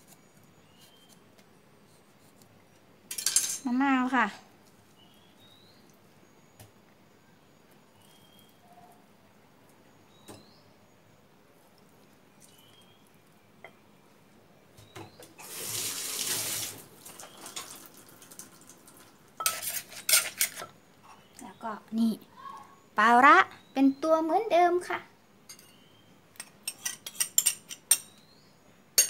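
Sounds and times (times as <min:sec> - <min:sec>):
liquid pouring: 0:15.4 - 0:19.3.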